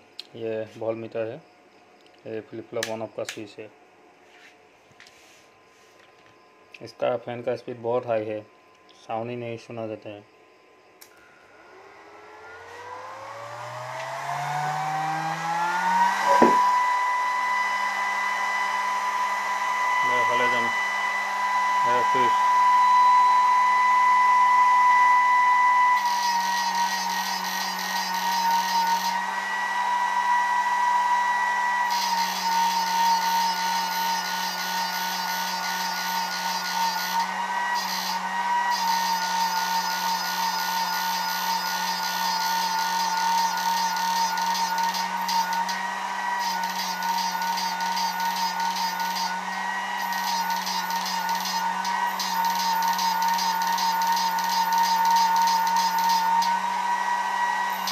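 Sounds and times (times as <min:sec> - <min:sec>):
high-pitched electronic whine: 0:10.1 - 0:29.2, 0:30.2 - 0:56.6, 0:57.7 - 0:57.9.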